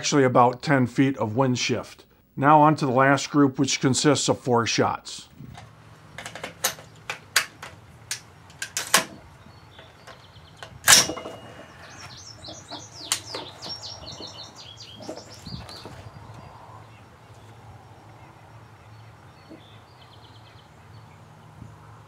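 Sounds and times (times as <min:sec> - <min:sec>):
songbird chirping: 0:05.8 - 0:22.0.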